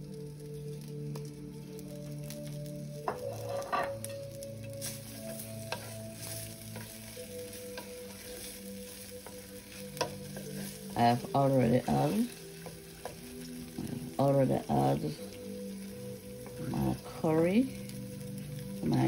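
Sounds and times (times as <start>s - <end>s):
light sizzle of oil: 0.0s - 19.0s
wooden spoon scraping a pan: 3.0s - 15.2s.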